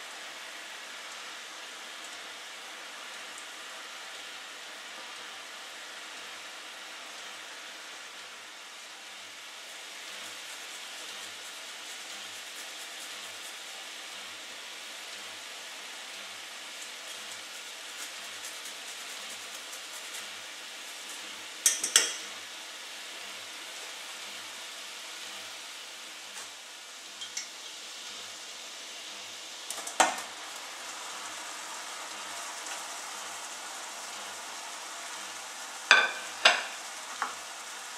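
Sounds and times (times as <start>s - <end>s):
liquid sizzling and bubbling: 0.0s - 37.9s
utensil knocking on pan: 21.6s - 22.3s, 35.9s - 37.4s.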